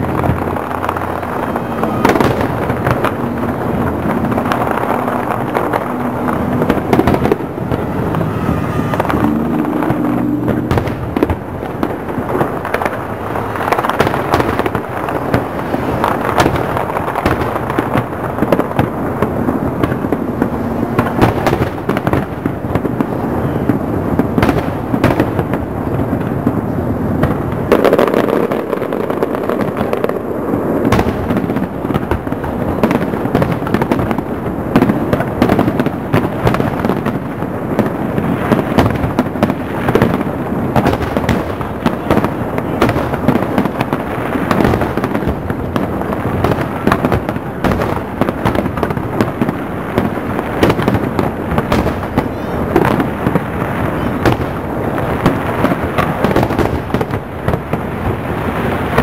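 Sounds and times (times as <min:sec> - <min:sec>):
fireworks bursting: 0:00.0 - 0:59.0.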